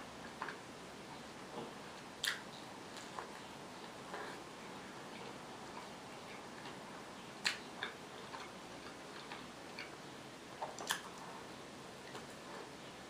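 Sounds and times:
mouth clicks from chewing: 2.2 - 2.4, 7.4 - 10.0, 10.6 - 11.2.

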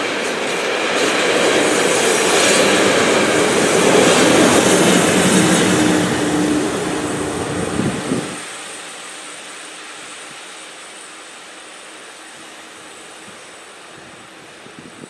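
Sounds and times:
train rolling past: 0.0 - 8.6.

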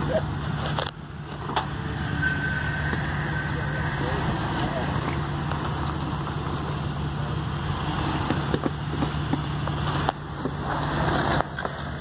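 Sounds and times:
rocks clicking and knocking under tyres: 8.0 - 12.0.

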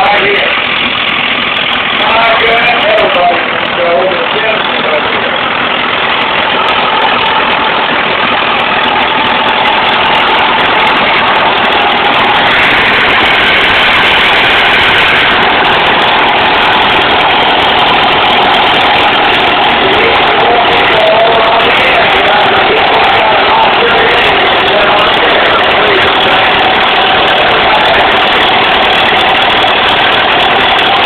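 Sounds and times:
tractor engine running under load: 0.0 - 31.0.

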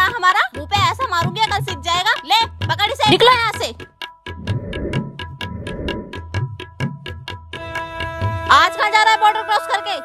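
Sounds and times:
quick ticking percussion: 0.0 - 8.8
pulsing low bass line: 4.3 - 6.2.

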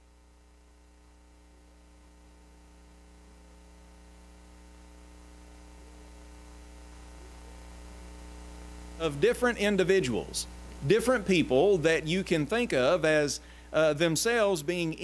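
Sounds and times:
electrical mains hum: 0.0 - 15.0
faint hiss: 5.3 - 15.0.

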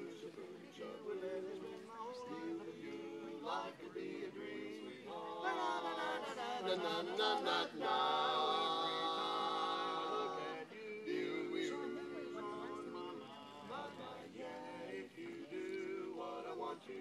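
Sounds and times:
male quartet singing a cappella: 0.0 - 17.0.

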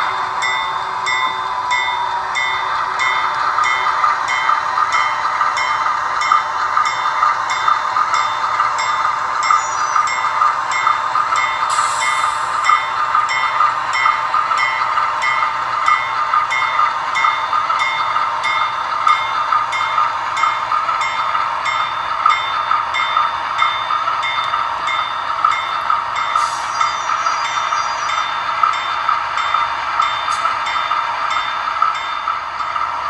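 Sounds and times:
model train diesel engine sound: 0.0 - 33.0
air hiss: 11.6 - 12.7, 26.4 - 27.0.

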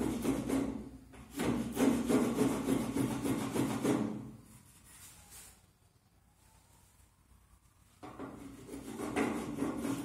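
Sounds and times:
spokeshave scraping wood: 8.2 - 10.0.

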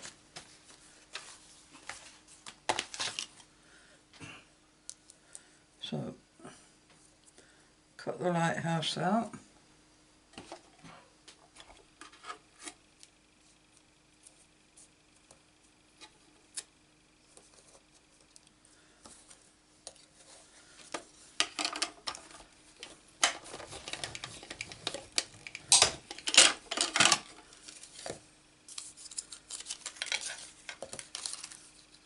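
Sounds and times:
plates rustling and clicking: 20.8 - 28.1.

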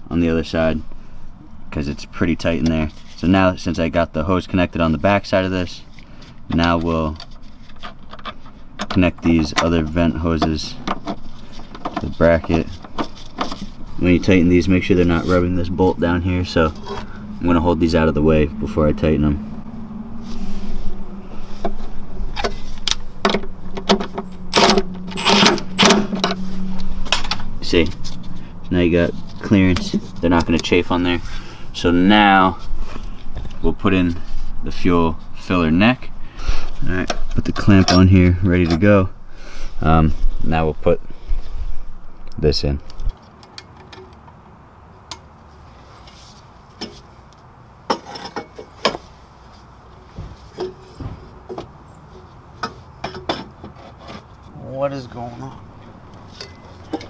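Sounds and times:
metal pipe clinking against car: 56.3 - 57.0.

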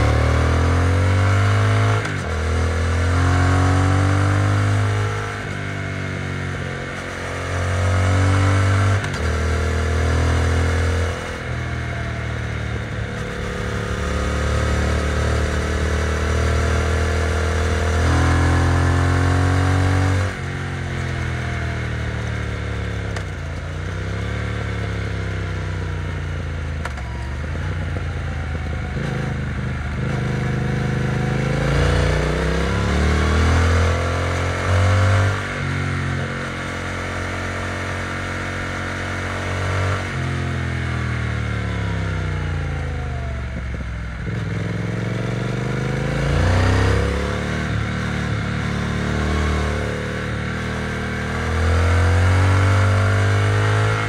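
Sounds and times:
motorcycle engine revving: 0.0 - 54.0.

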